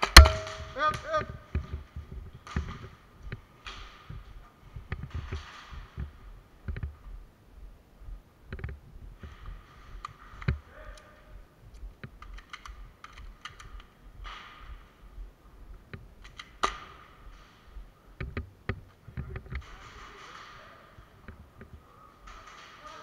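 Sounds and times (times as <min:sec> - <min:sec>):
airsoft guns firing: 0:00.0 - 0:01.0, 0:22.2 - 0:23.0.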